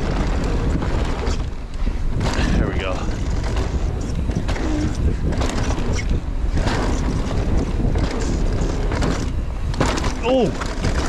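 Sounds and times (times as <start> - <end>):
bike tyres rumbling on dirt trail: 0.0 - 11.0
wind buffeting microphone: 0.0 - 11.0.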